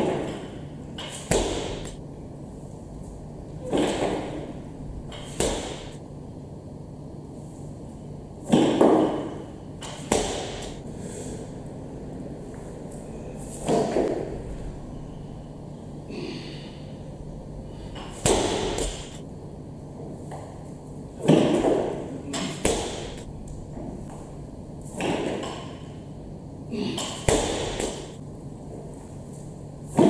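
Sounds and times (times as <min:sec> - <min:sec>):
barbell plates thudding on floor: 0:01.2 - 0:02.0, 0:05.2 - 0:06.0, 0:08.5 - 0:10.8, 0:18.0 - 0:19.2, 0:27.0 - 0:28.2.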